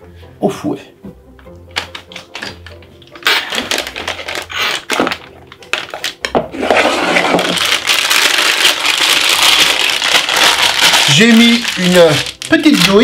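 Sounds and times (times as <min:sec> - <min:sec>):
plastic piping bag crinkling: 0:03.1 - 0:13.0.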